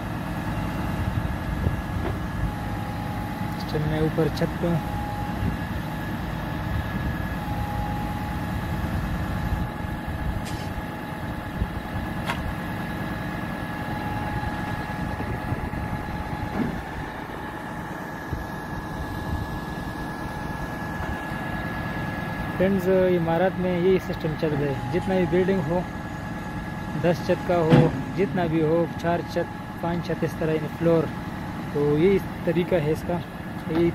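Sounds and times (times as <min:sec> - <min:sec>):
diesel engine idling: 0:00.0 - 0:33.9
thin steady whine: 0:13.8 - 0:31.0.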